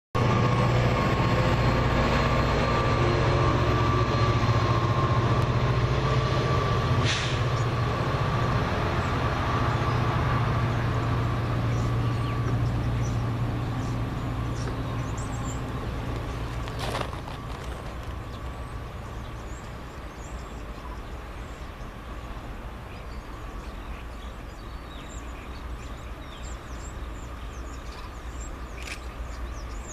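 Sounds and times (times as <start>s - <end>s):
distant locomotive engine drone: 0.2s - 29.9s.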